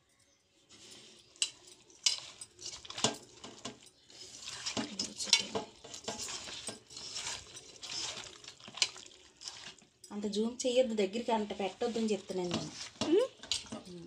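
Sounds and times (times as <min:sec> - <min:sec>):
hands mixing fish rustling: 0:00.6 - 0:14.0.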